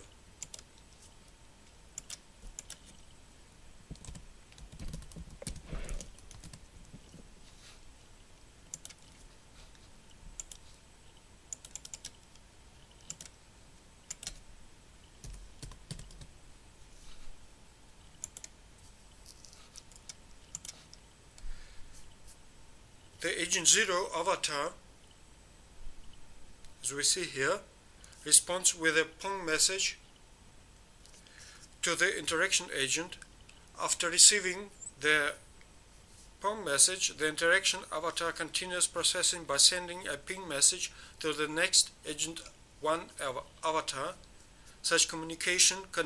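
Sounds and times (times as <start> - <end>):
computer keyboard typing: 0.4 - 0.8, 2.0 - 3.0, 3.9 - 7.2, 8.7 - 9.2, 10.4 - 10.6, 11.5 - 13.4, 14.1 - 14.4, 15.2 - 16.3, 18.2 - 18.6, 19.8 - 20.9.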